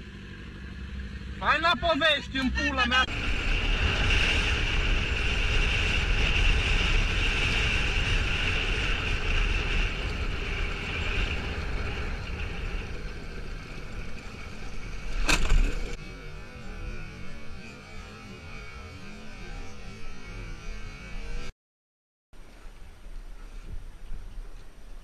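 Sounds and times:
motorcycle engine: 0.0s - 21.5s
wind noise: 3.0s - 16.0s.

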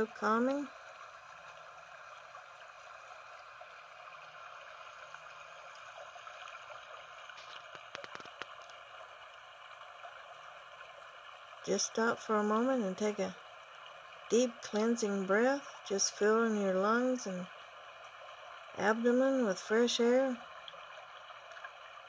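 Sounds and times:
stream flowing over rocks: 0.0s - 22.0s
faint clicks: 7.3s - 8.8s.

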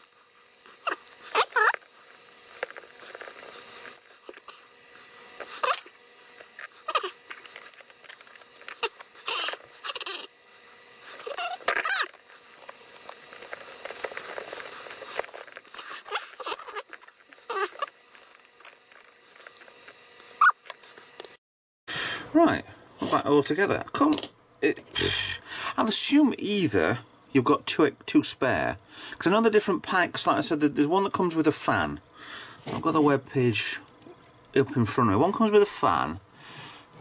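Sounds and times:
short squeaks: 11.0s - 12.2s, 14.0s - 20.9s.

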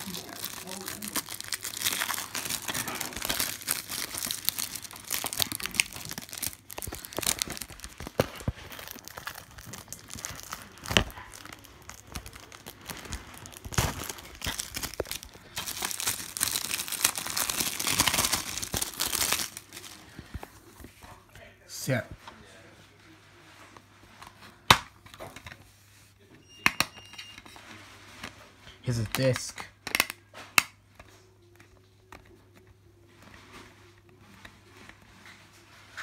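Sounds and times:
plastic wrap crinkling: 0.0s - 21.2s.

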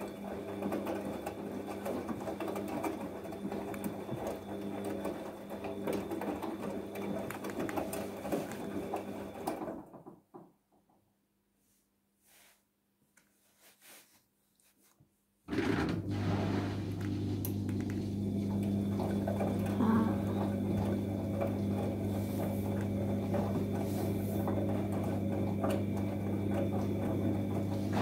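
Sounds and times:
water and laundry sloshing: 0.0s - 9.6s, 15.6s - 28.0s
washing machine motor hum: 0.0s - 10.4s, 15.5s - 28.0s.

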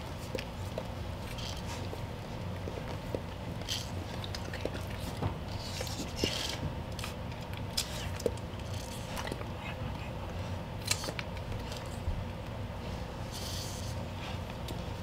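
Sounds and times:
dog licking puppy: 0.1s - 6.2s.

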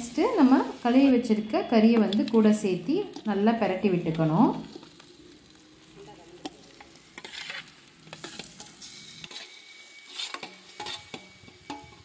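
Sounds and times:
chicken sizzling in hot oil: 0.0s - 12.0s
metal spoon scraping metal plate: 7.2s - 12.0s.

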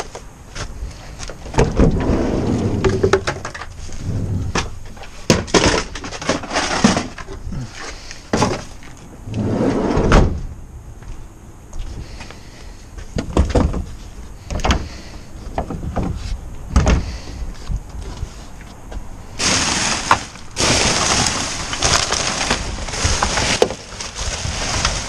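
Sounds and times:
boxes knocking and clunking: 1.4s - 3.7s, 4.4s - 9.0s, 13.0s - 17.4s
packaging rustling: 19.4s - 25.0s.

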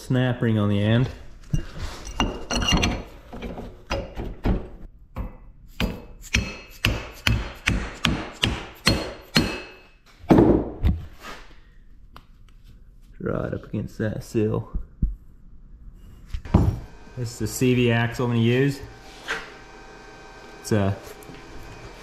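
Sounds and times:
mallet knocking on steel hub: 5.2s - 9.8s.

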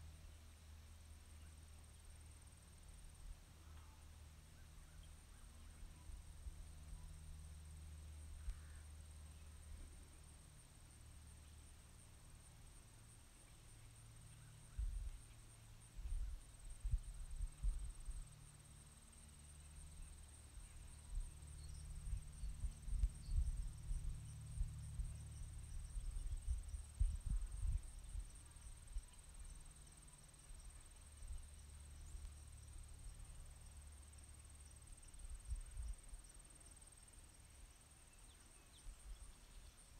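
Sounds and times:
insects trilling: 11.4s - 39.9s
low rumble: 19.6s - 29.3s.

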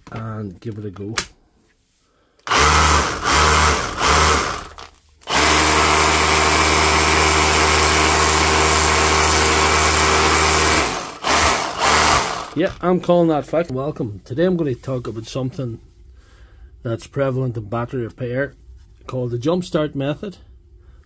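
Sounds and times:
rotary hammer running: 2.5s - 12.8s.

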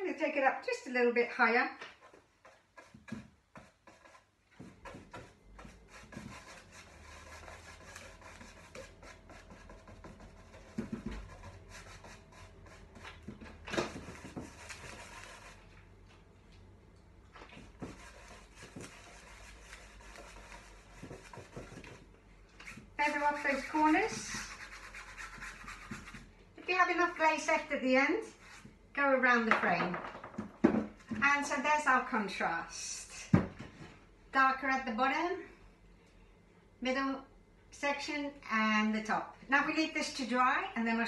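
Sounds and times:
paintbrush scrubbing on canvas: 2.0s - 13.2s, 13.9s - 15.7s, 17.6s - 22.0s, 22.6s - 26.3s.

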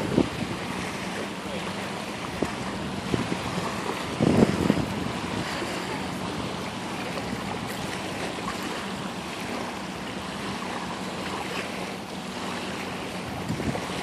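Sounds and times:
river waves washing on sand: 0.0s - 14.0s.

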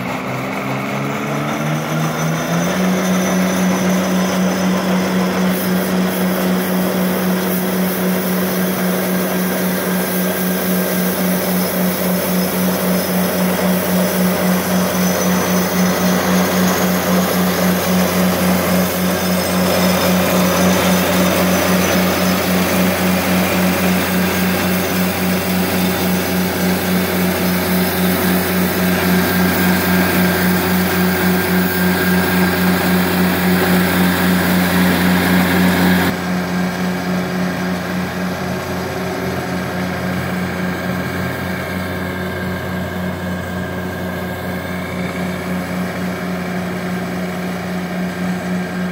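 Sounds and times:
diesel engine running under load: 0.0s - 48.9s
broom sweeping concrete: 4.5s - 36.2s.

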